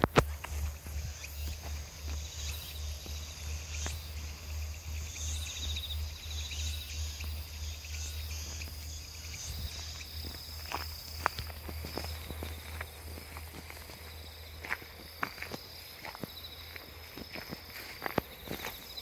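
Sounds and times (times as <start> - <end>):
insects trilling: 0.0 - 19.0.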